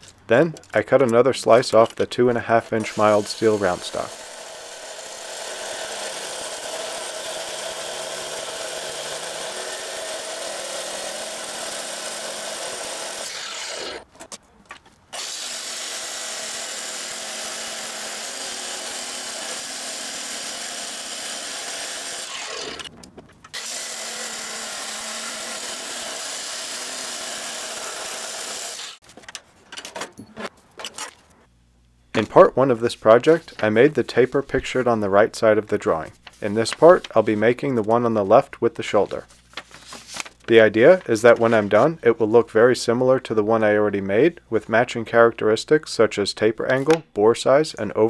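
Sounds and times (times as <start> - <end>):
chop saw grinding steel: 1.7 - 14.1, 15.2 - 22.9, 23.5 - 29.0.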